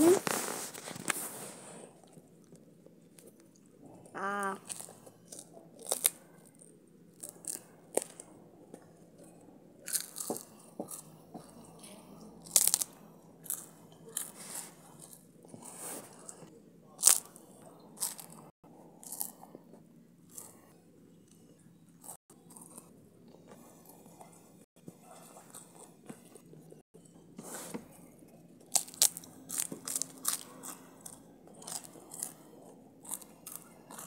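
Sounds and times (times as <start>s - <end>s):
brief voiced hum: 0.0s - 0.4s
rice cake crunching: 4.6s - 8.3s, 9.8s - 11.0s, 12.4s - 15.2s, 17.0s - 17.4s, 28.6s - 34.0s.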